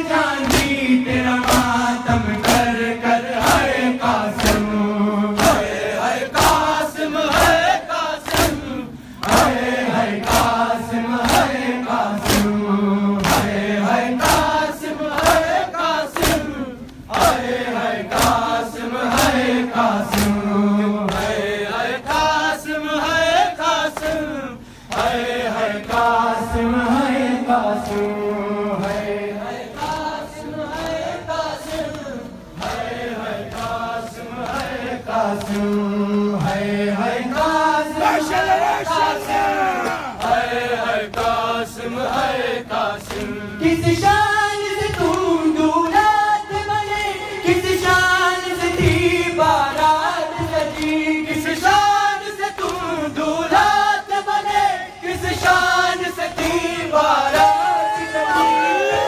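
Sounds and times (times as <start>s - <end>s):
men chanting together: 0.0s - 59.0s
hands slapping chests: 0.4s - 0.8s, 1.4s - 1.8s, 2.4s - 2.8s, 4.3s - 4.7s, 5.3s - 5.8s, 7.3s - 9.6s, 10.2s - 10.6s, 11.2s - 12.6s, 13.2s - 13.6s, 14.2s - 17.5s, 18.1s - 19.4s, 20.0s - 20.4s, 21.1s - 21.4s, 52.5s - 52.9s.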